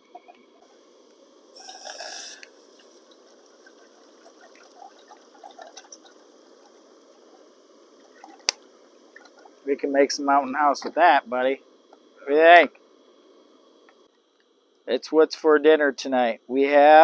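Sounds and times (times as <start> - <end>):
water pouring into metal pot: 3.0 - 6.8.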